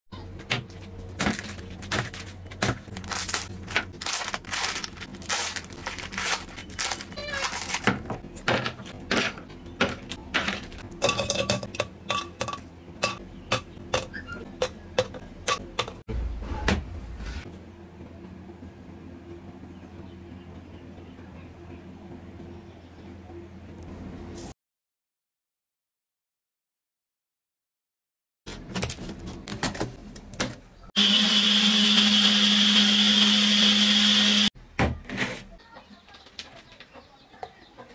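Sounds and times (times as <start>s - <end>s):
foil wrappers crinkling: 1.0s - 8.2s
blender motor whining: 31.0s - 34.5s.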